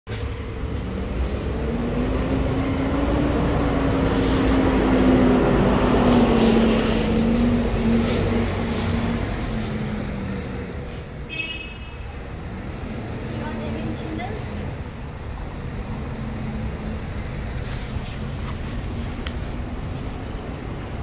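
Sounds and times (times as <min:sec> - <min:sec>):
vehicle engine passing: 0:00.4 - 0:11.1.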